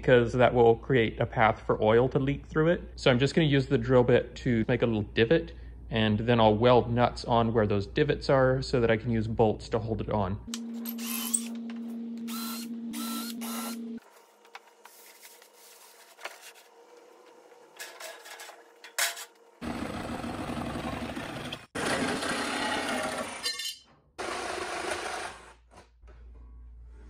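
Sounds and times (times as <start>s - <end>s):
cordless drill spinning: 12.3s - 13.8s
jigsaw cutting sheet metal: 12.3s - 13.9s, 19.7s - 23.6s, 24.2s - 25.8s.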